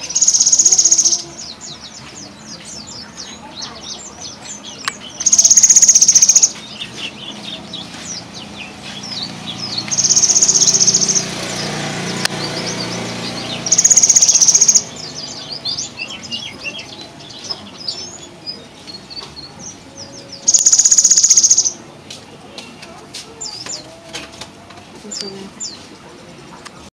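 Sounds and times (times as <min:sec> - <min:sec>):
bird buzzing trill: 0:00.0 - 0:01.3, 0:05.2 - 0:06.6, 0:09.7 - 0:15.1, 0:20.4 - 0:21.8
short high bird chirps: 0:00.0 - 0:01.3, 0:05.2 - 0:06.6, 0:09.9 - 0:11.3, 0:13.5 - 0:15.6, 0:20.4 - 0:21.8.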